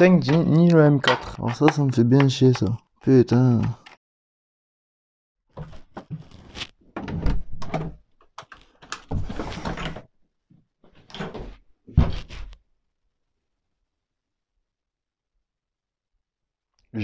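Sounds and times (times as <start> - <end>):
door opening: 6.9 - 10.1
thuds and knocks: 11.2 - 12.4.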